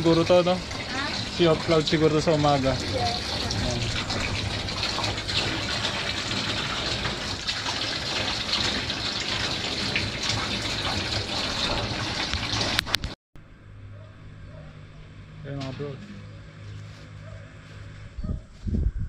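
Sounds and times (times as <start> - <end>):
tap water running into bathtub: 0.0 - 13.2.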